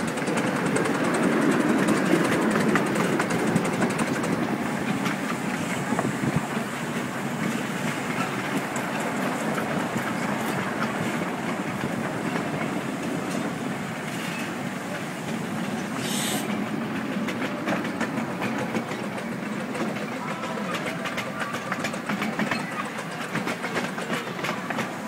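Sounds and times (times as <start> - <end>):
train wheels clicking over rail joints: 0.0 - 25.0
hiss of steam: 4.0 - 20.0.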